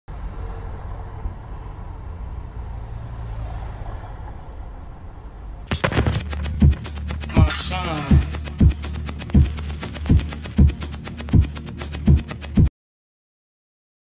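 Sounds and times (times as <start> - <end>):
city traffic rumble: 0.1 - 6.9
music with heavy beat: 5.7 - 12.7.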